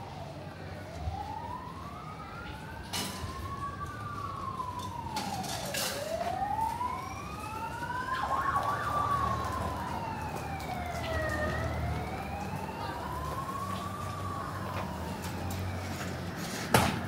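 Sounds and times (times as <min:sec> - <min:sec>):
emergency siren wailing: 0:00.0 - 0:17.0.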